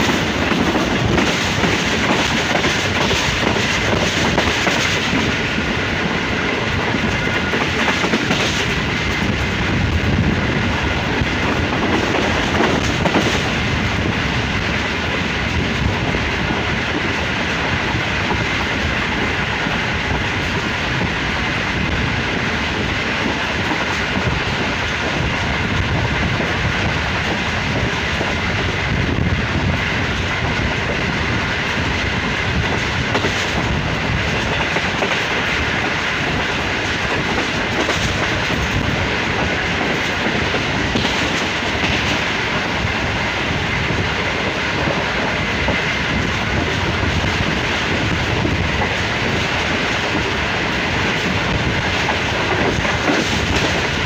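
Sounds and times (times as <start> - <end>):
train clattering over track: 0.0 - 54.0
train wheels rumbling on rails: 0.0 - 54.0.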